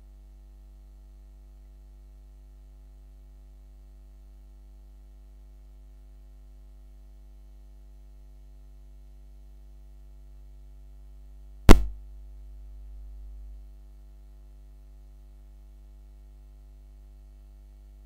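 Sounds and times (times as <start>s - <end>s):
faint electrical mains hum: 0.0s - 18.0s
sharp loud knock: 11.7s - 11.9s.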